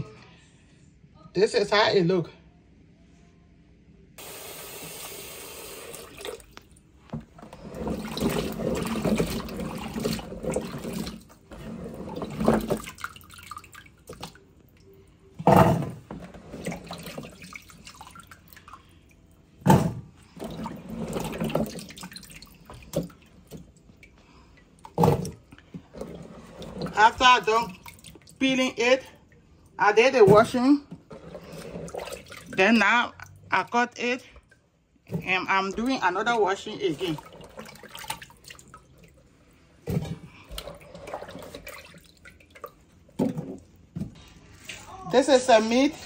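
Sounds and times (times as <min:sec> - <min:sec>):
water splashing: 0:05.7 - 0:29.2, 0:30.2 - 0:33.8, 0:35.2 - 0:43.9
loud water sloshes: 0:07.6 - 0:14.5, 0:16.4 - 0:18.8, 0:19.6 - 0:23.7, 0:24.8 - 0:28.4, 0:31.1 - 0:32.6, 0:36.9 - 0:39.2, 0:39.8 - 0:43.8.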